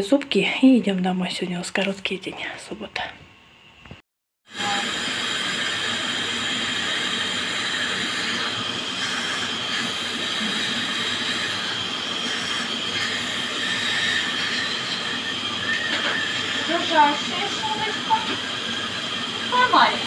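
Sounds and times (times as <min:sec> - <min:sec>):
dental drill whine: 0:04.5 - 0:20.0
hiss: 0:04.5 - 0:20.0.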